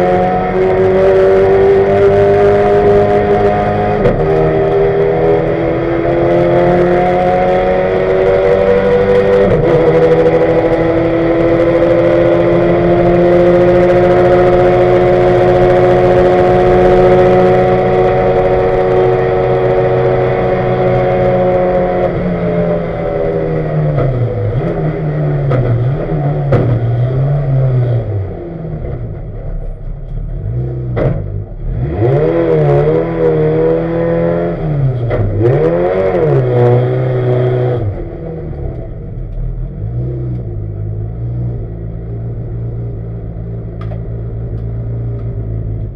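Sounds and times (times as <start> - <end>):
race car engine revving: 0.0 - 45.9
sharp knocks: 26.5 - 26.9.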